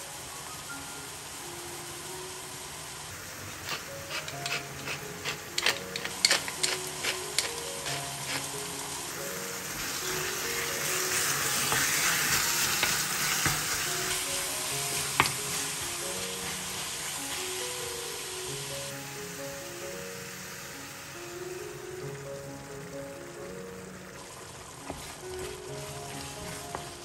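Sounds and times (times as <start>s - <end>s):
meat sizzling in a frying pan: 0.0s - 27.0s
pepper mill grinding: 3.4s - 17.4s
wooden spoon stirring: 3.6s - 8.5s, 10.3s - 17.3s, 24.2s - 27.0s.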